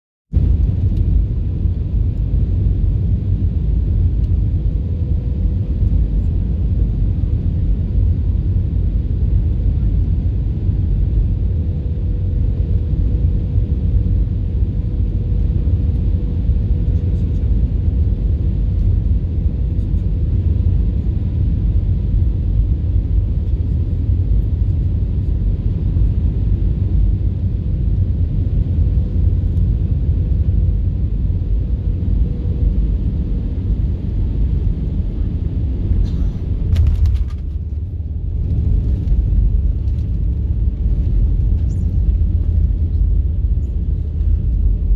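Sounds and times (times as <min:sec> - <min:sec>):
airliner engine rumble in cabin: 0:00.3 - 0:44.9.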